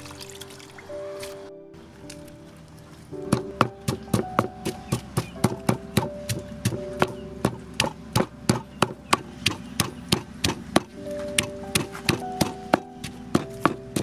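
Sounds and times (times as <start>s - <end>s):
pestle pounding in wooden mortar: 3.3s - 14.0s.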